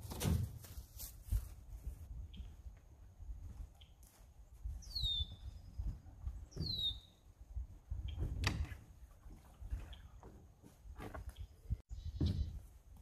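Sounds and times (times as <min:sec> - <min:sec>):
high downward bird calls: 0:04.8 - 0:07.3, 0:11.3 - 0:12.7.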